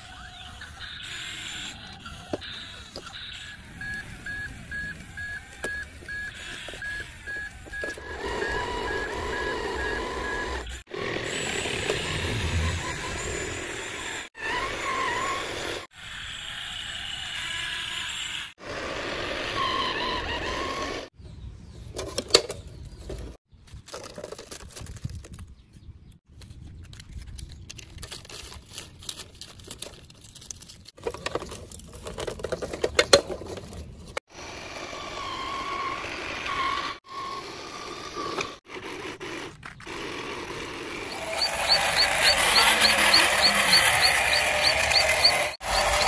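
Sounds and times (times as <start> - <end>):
plastic toy scraping over sand: 36.6 - 46.0.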